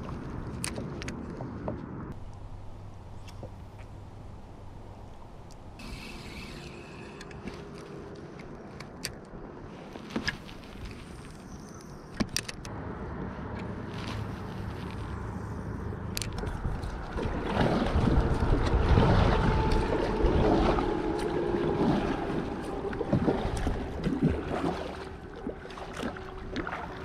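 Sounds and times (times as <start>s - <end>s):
wind buffeting microphone: 15.8s - 26.7s
water lapping at kayak: 16.4s - 27.0s.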